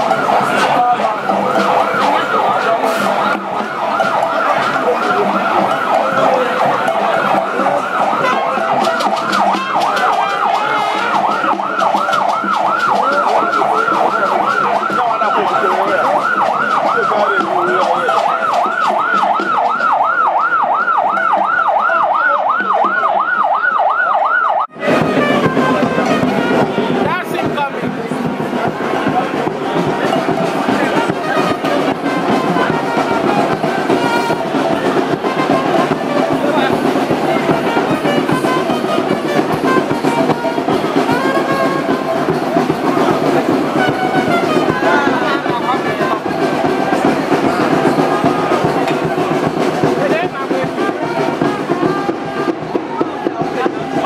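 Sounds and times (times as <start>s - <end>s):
warbling siren-like tone: 0.0s - 24.8s
crowd noise: 0.0s - 54.0s.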